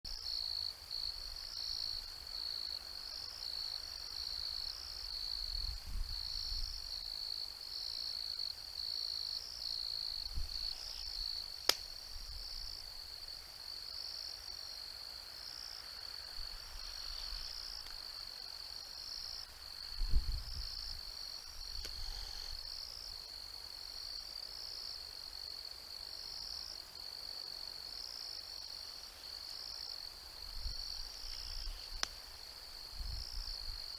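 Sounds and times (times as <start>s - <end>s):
insects trilling: 0.1s - 33.9s.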